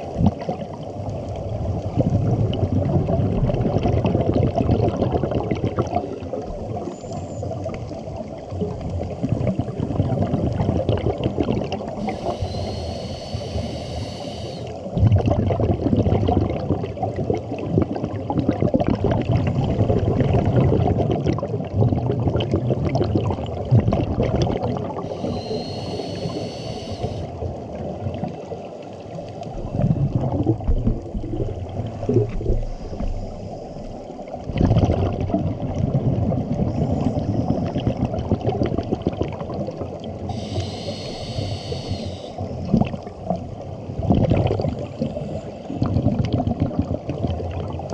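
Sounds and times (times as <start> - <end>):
exhaled bubbles: 0.0 - 47.9
diver inhaling through regulator: 12.0 - 14.9, 25.0 - 27.4, 40.2 - 42.6, 44.9 - 45.9.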